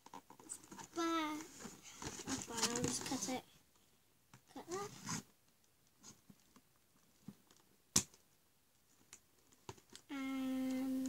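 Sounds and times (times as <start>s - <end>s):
child's voice: 0.9s - 1.5s, 2.3s - 3.5s, 4.5s - 5.0s, 10.1s - 11.0s.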